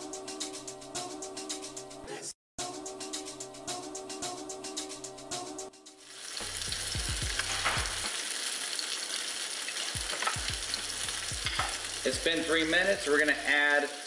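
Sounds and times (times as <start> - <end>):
background music: 0.0 - 8.2, 10.0 - 13.5
fish sizzling in a pan: 5.9 - 14.0.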